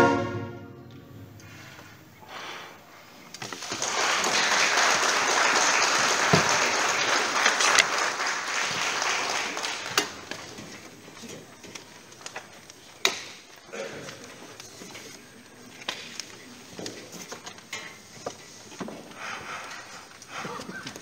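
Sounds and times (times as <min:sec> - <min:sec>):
audience applauding: 0:03.4 - 0:10.5.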